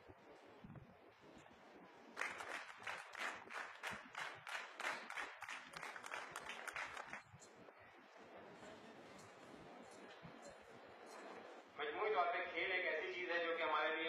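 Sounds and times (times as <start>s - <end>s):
audience applause: 2.2s - 7.2s.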